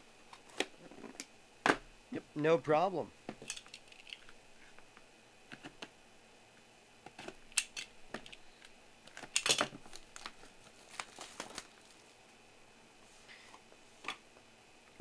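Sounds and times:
plastic wrap crinkling: 9.1s - 12.2s.

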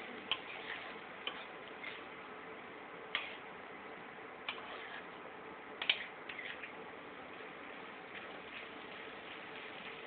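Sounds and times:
hot oil popping: 8.0s - 10.0s.

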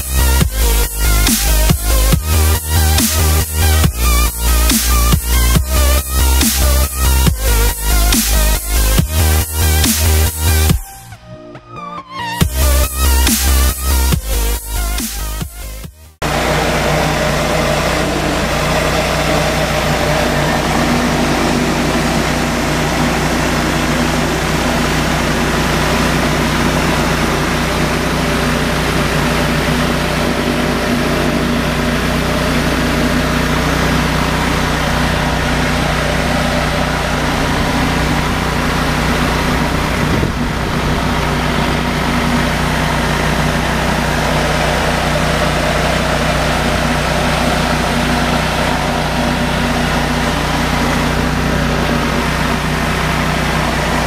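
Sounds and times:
pressure washer engine running: 0.0s - 11.1s, 12.4s - 54.0s
surface cleaner spraying concrete: 16.2s - 54.0s.

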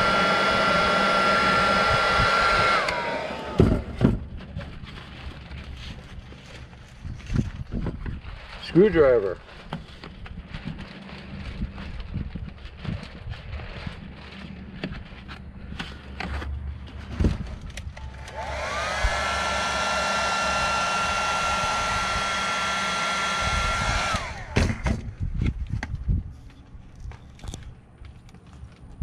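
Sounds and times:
rush of hot air: 0.0s - 3.7s, 18.1s - 24.6s
heat gun motor whine: 0.0s - 4.1s, 18.0s - 24.9s.

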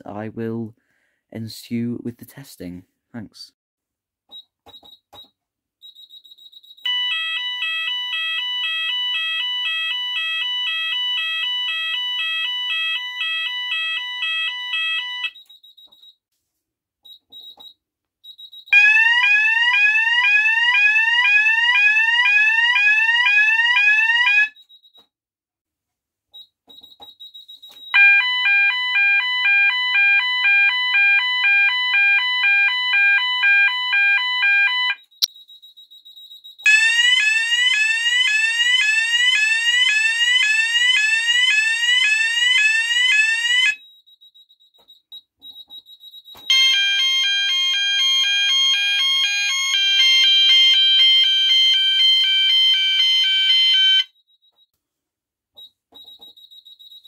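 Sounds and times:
two-tone fire alarm warble: 5.8s - 15.5s, 18.4s - 24.7s, 27.3s - 54.6s
rising sweep alarm tone: 46.5s - 54.1s.

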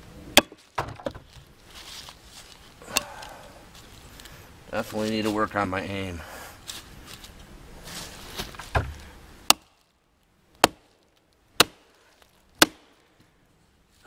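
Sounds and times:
hatchet chopping wood: 0.4s - 1.2s, 8.6s - 9.7s, 10.6s - 10.9s, 11.6s - 11.9s, 12.6s - 13.0s
dull knock on wood: 8.7s - 9.0s.

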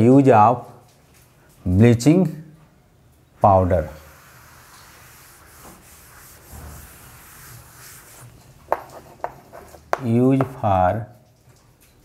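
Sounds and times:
duster wiping chalkboard: 3.7s - 10.7s
sharp taps: 8.7s - 10.7s.

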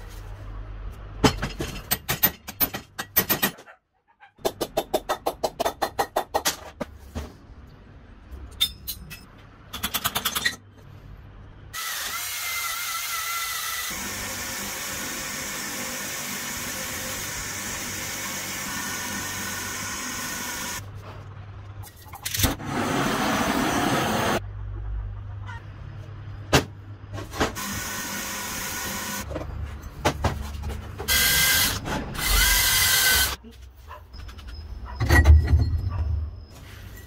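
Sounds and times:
power tool whirring: 31.1s - 33.4s.

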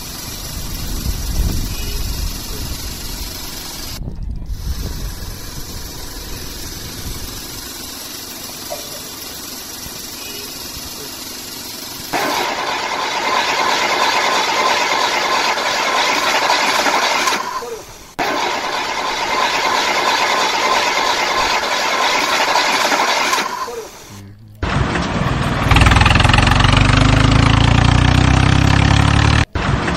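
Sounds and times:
toy truck wheels rolling on concrete: 0.0s - 24.1s.

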